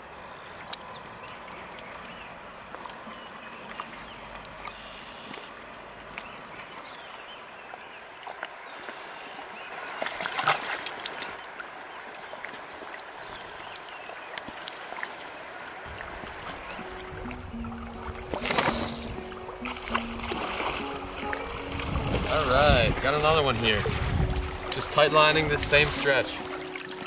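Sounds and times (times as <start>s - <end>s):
river water running: 0.0s - 27.0s
water splash: 10.0s - 11.4s, 14.4s - 27.0s.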